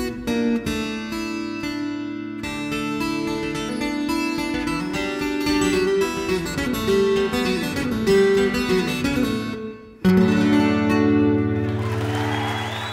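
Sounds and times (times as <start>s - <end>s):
guitar chord ringing: 0.0s - 12.0s
fingerpicked acoustic guitar: 0.0s - 12.1s.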